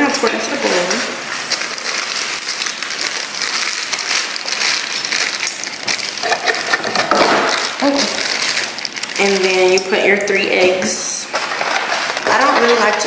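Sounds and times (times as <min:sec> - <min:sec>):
dry mix pouring into bowl: 0:00.6 - 0:10.1.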